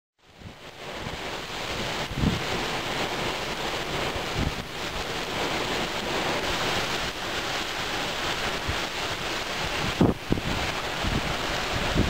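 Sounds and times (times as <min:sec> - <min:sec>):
torrential rain on pavement: 0:00.2 - 0:12.0
wind rumbling on microphone: 0:00.2 - 0:12.0.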